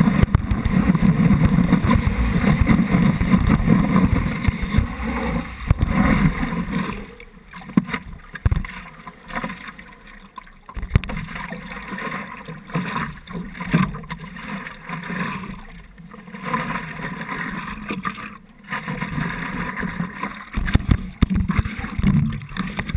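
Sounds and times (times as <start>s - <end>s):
sharp splashes and knocks: 0.0s - 9.8s, 10.7s - 12.2s, 18.8s - 22.9s
seawater sloshing against board: 0.0s - 10.1s.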